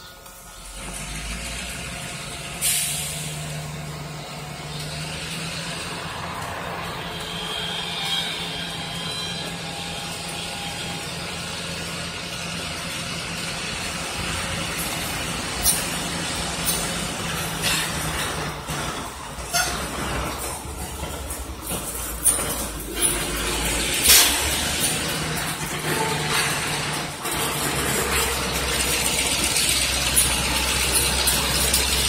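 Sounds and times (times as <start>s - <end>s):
freight train rolling: 0.0s - 32.0s
high squeal: 2.5s - 20.4s.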